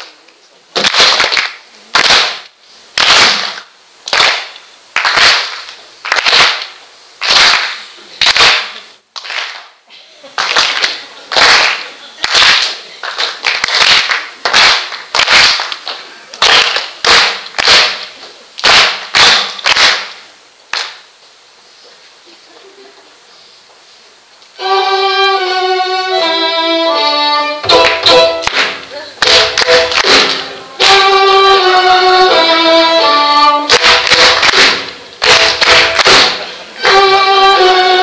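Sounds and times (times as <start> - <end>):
hand claps in unison: 0.8 - 9.8, 10.4 - 21.0, 27.7 - 31.0, 33.7 - 37.0.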